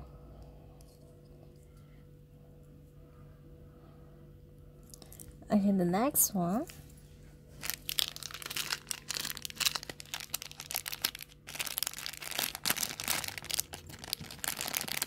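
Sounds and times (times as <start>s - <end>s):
plastic bag crinkling: 7.6s - 15.0s.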